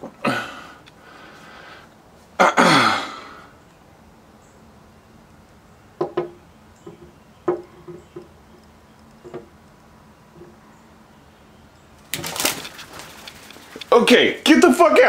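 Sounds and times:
bird wings flapping: 12.0 - 14.0.

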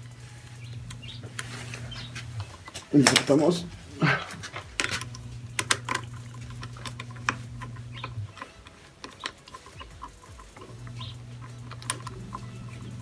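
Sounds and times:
screwdriver turning screws: 0.0 - 13.0
plastic and metal clicks: 4.3 - 13.0.

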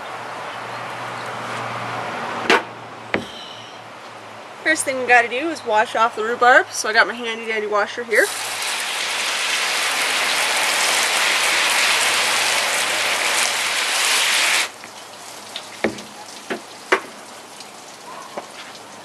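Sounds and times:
short knocks: 2.4 - 3.4
hose nozzle spraying water: 8.2 - 14.8.

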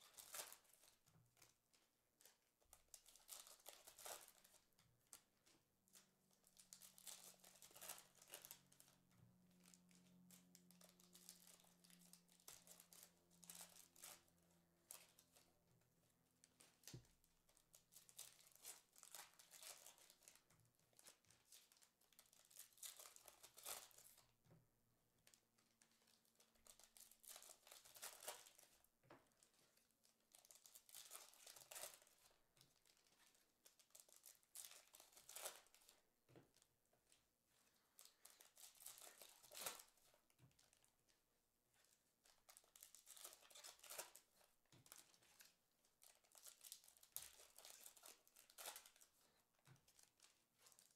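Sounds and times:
foil packs tearing and crinkling: 6.6 - 8.8, 26.7 - 28.6, 30.4 - 32.1, 38.0 - 39.9, 46.3 - 49.1.

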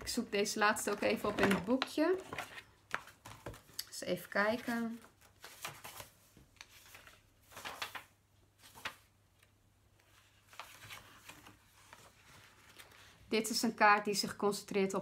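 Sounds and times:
paper pages rustling: 0.9 - 13.2.

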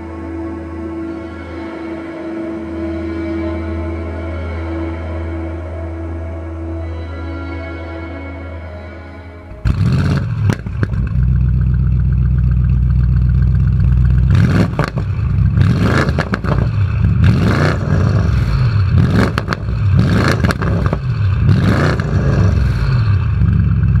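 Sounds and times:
car engine idling and revving: 9.3 - 24.0
exhaust pops: 9.6 - 24.0.

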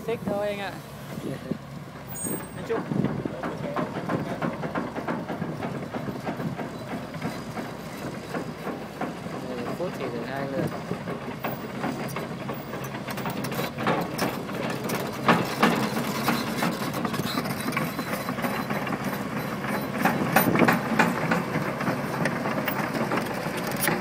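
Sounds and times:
diesel engine running: 0.0 - 24.0
clatter of track links: 1.9 - 24.0
loud knocks: 2.8 - 9.5.

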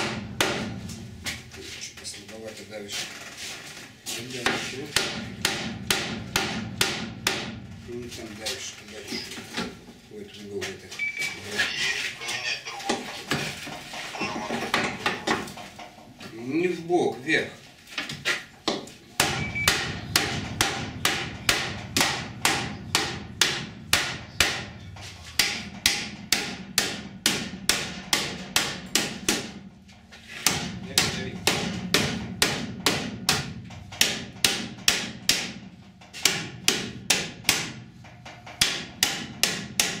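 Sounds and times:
hammer blows on sheet metal: 0.0 - 1.6, 4.1 - 7.9, 18.8 - 40.0.

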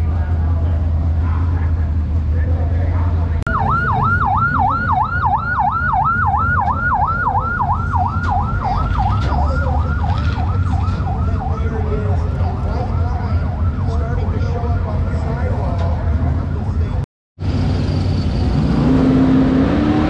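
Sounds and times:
police siren yelping: 3.5 - 16.8.

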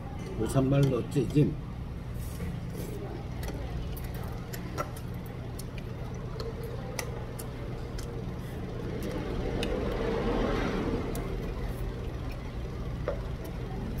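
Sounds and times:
chopsticks and spoon clicking on bowls: 0.4 - 1.4, 3.4 - 8.2
low hum: 5.2 - 14.0.

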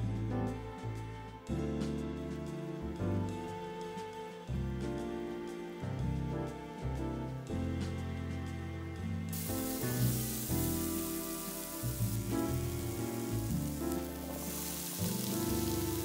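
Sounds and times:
instrumental background music: 0.0 - 16.0
onion sizzling in hot oil: 9.3 - 16.0.

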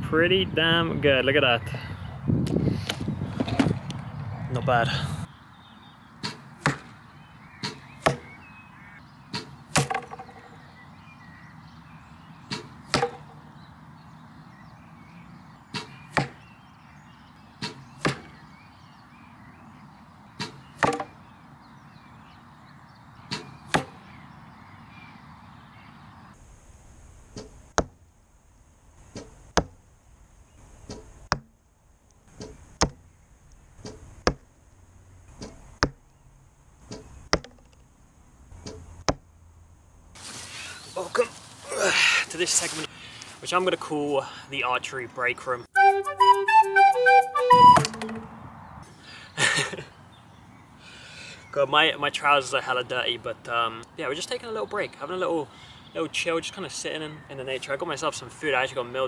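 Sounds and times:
arrow thudding into target: 6.2 - 6.9, 9.3 - 10.3, 12.5 - 13.2, 15.7 - 16.4, 17.6 - 18.3, 20.4 - 21.1, 23.3 - 24.0.

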